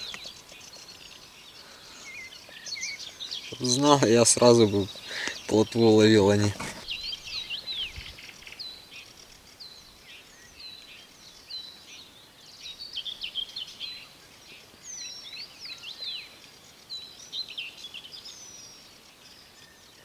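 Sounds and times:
faint outdoor hiss: 0.0s - 20.0s
songbirds singing: 0.0s - 20.0s.

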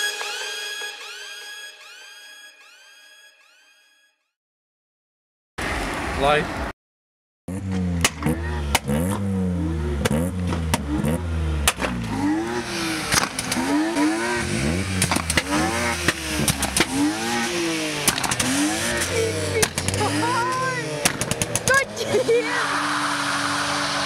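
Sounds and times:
sharp exhaust pops: 7.5s - 9.4s, 10.0s - 22.1s
car engine revving hard: 7.5s - 24.0s.

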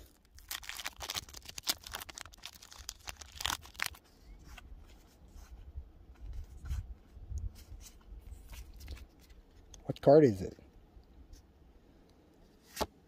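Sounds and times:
foil wrapper tearing and crinkling: 0.0s - 4.0s
cards rustling: 0.0s - 5.0s, 7.5s - 9.8s.

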